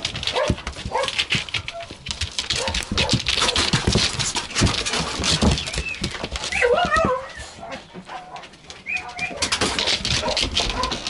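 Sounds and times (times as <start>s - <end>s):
dog claws clicking on wood: 0.0s - 7.2s, 8.0s - 11.0s
thumps of paws and bodies: 0.0s - 8.1s.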